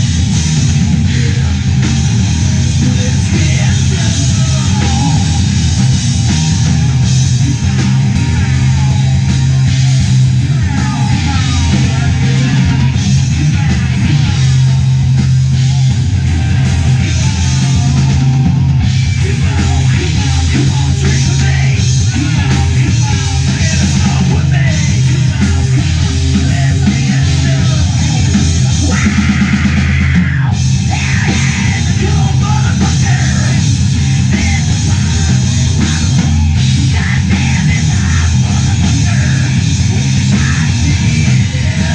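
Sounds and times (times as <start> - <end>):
live rock band playing: 0.0 - 41.9.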